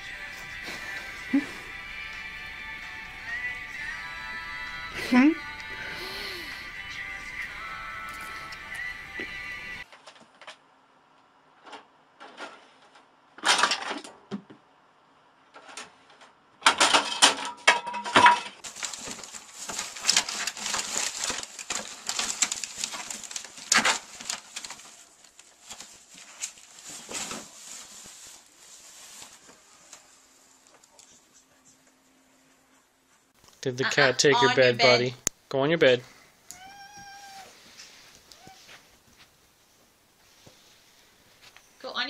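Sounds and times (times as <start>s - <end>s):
ferret crinkling and rustling: 18.6s - 31.4s.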